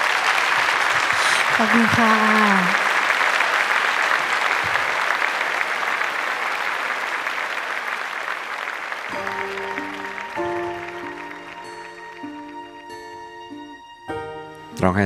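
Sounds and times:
audience applauding: 0.0 - 13.9
soft sustained music chords: 9.1 - 15.0.

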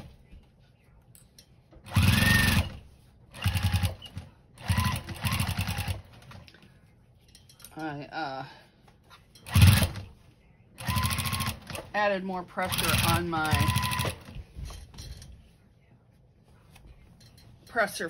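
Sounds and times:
sewing machine stitching: 1.9 - 2.8, 3.4 - 6.4, 9.4 - 10.0, 10.8 - 11.9, 12.6 - 14.3.

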